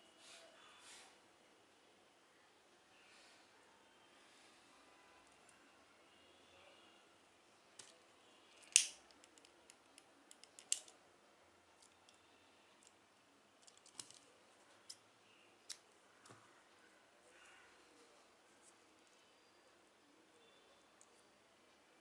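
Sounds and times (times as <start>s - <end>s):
plastic beads clicking: 8.5s - 10.9s, 13.6s - 14.3s
lighter: 8.6s - 9.0s.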